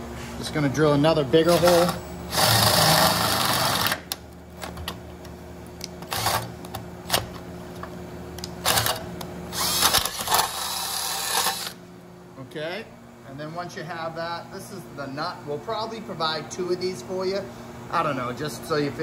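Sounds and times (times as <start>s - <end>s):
cordless drill boring into steel: 1.5s - 4.0s, 9.5s - 11.8s.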